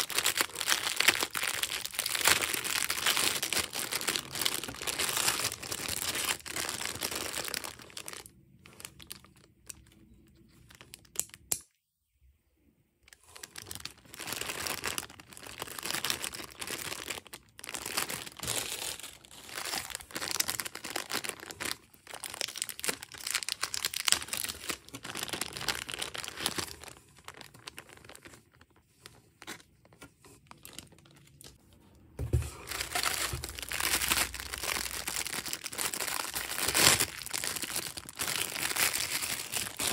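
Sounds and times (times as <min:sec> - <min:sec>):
plastic bags crinkling and rustling: 0:00.0 - 0:11.3, 0:13.1 - 0:39.9.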